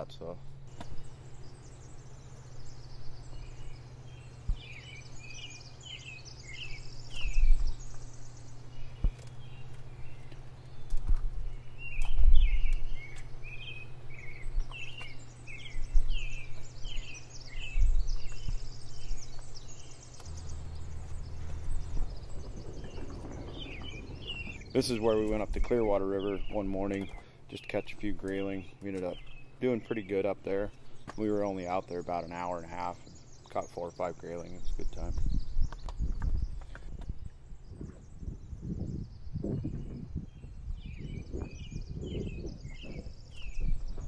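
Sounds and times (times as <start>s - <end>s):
birds chirping: 0.0s - 44.0s
steady low hum: 0.0s - 44.0s
low rumbling swells: 17.7s - 26.8s.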